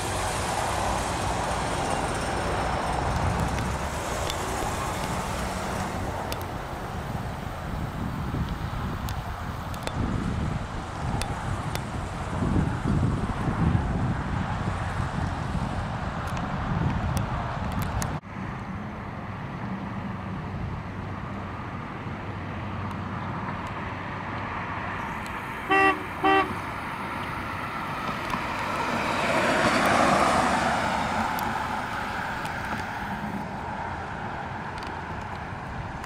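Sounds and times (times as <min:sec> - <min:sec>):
car driving past: 0:24.6 - 0:34.0
car horn toots: 0:25.6 - 0:26.6.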